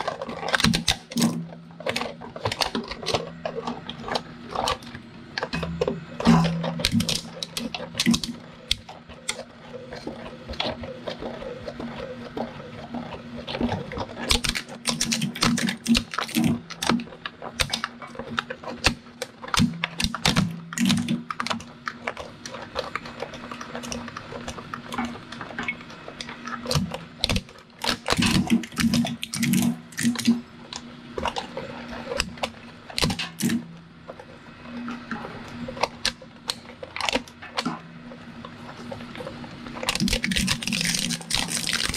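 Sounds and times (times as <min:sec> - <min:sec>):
blades cracking and clicking: 0:38.4 - 0:41.9.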